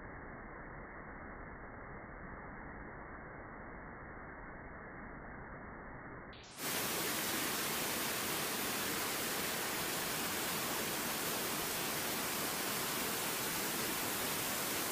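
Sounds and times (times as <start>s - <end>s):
quiet dull stream: 0.0s - 14.9s
waterfall rushing into pool: 6.5s - 14.9s.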